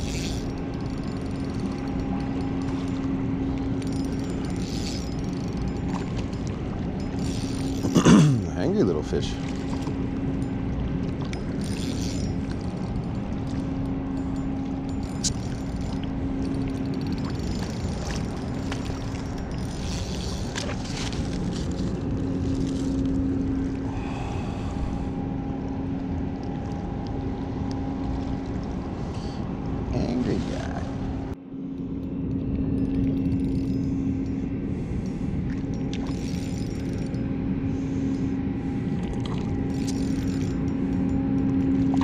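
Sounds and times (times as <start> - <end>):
mechanical hum: 0.0 - 42.0.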